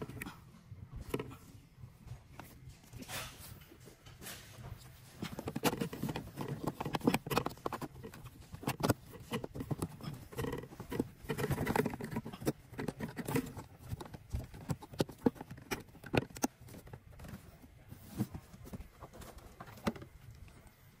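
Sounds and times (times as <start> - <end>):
plastic clicks and knocks: 5.2 - 17.5.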